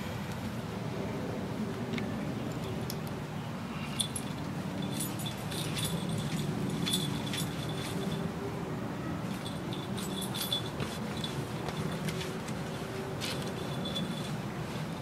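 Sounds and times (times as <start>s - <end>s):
metallic jingling: 3.8s - 8.4s, 9.2s - 15.0s.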